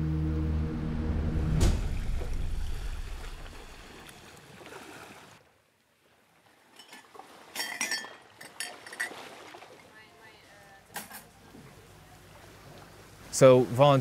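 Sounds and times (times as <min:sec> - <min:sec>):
music: 0:00.0 - 0:02.7
glass mugs clinking: 0:06.8 - 0:09.2.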